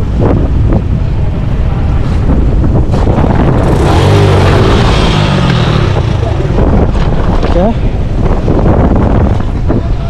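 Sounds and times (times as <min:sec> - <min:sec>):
motorcycle engine under load: 0:02.8 - 0:08.0.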